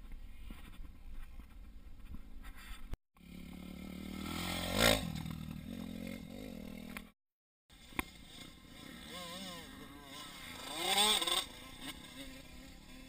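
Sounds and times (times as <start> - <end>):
motocross bike engine passing: 3.2 - 7.2, 7.8 - 13.0.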